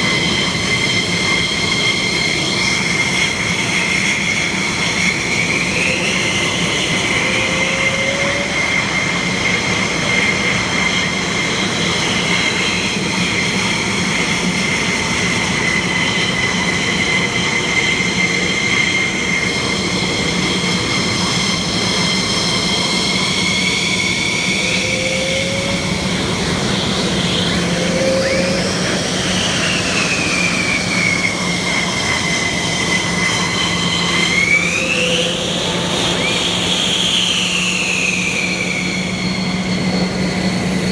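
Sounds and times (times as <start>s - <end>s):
jet engine whine: 0.0s - 40.9s
low hum: 20.8s - 36.9s.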